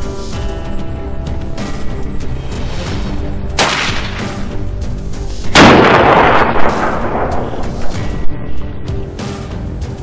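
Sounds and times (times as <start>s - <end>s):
background music: 0.0s - 10.0s
rifle shots: 3.6s - 4.3s, 5.6s - 7.6s.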